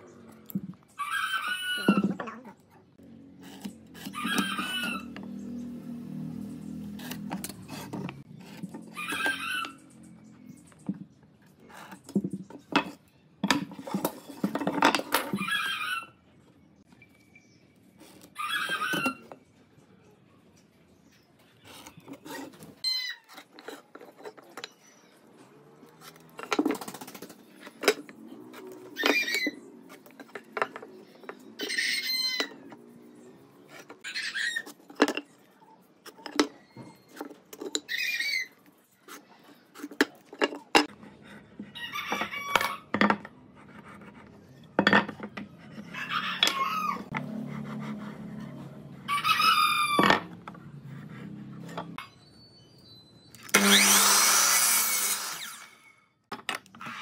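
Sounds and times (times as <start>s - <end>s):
chickens calling: 0.9s - 2.4s, 3.4s - 5.6s, 6.7s - 10.5s, 15.2s - 16.5s, 41.0s - 43.0s, 45.6s - 52.3s
rooster crowing: 4.1s - 5.3s, 45.9s - 47.2s, 49.0s - 50.3s.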